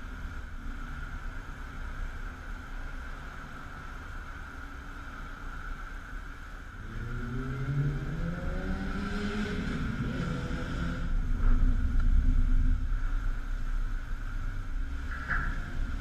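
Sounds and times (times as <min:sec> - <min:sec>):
low rumble and hiss: 0:00.0 - 0:16.0
car accelerating: 0:06.7 - 0:14.6.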